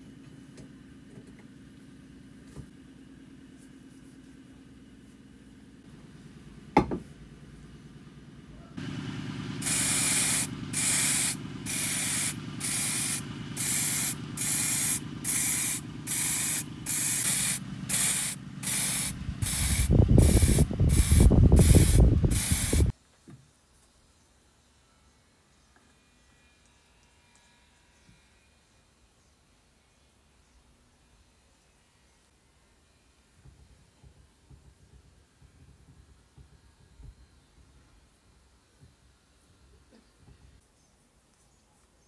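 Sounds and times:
loud low rumble: 8.4 - 22.9
spray hissing bursts: 8.8 - 22.9.

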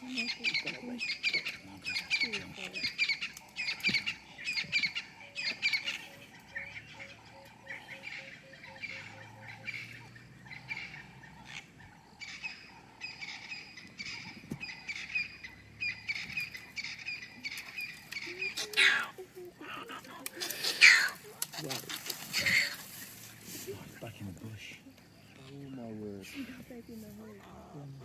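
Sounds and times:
animal chirping: 0.1 - 22.8.

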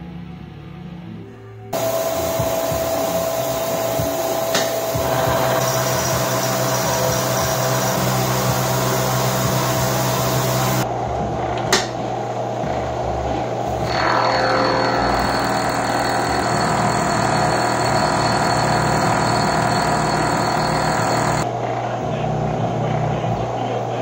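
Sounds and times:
cutting hiss: 1.8 - 10.8
milling machine whine: 1.8 - 10.9, 13.7 - 21.5
sharp click: 11.7 - 11.9.

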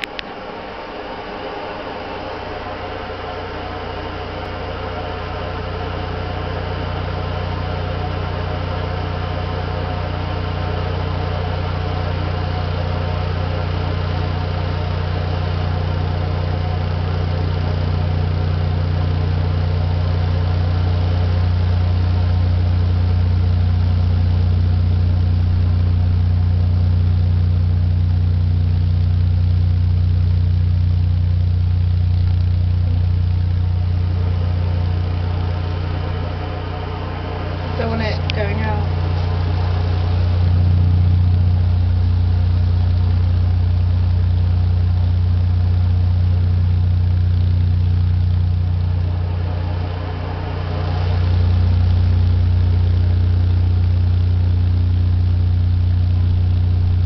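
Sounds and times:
loudspeaker low hum: 0.0 - 57.0
rough buzz: 33.4 - 43.3, 47.8 - 53.5.

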